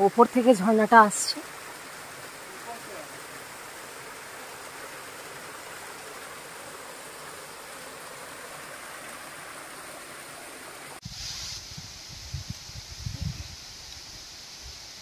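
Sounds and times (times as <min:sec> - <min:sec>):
waterfall rushing over rocks: 0:00.0 - 0:11.0
low thumps and hiss: 0:01.4 - 0:15.0.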